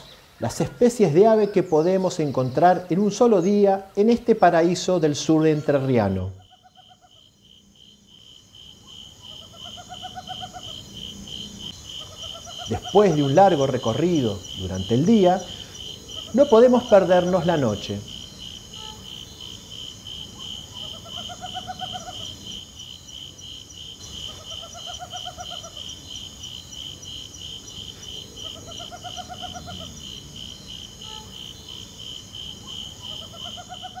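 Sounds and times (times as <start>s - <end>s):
cricket pulsing chirp: 0.0s - 34.0s
owl trilling call: 8.8s - 10.8s, 12.0s - 13.4s, 18.7s - 19.1s, 20.4s - 22.4s, 24.1s - 26.0s, 28.3s - 29.9s, 31.0s - 31.4s, 32.6s - 34.0s.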